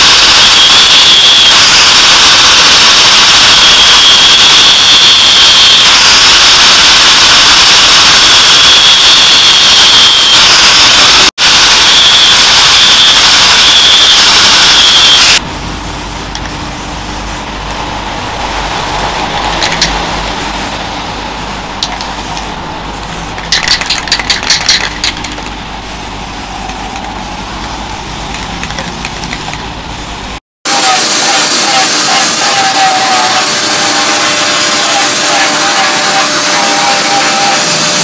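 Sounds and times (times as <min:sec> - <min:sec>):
aerosol spray can hissing: 0:20.4 - 0:30.2.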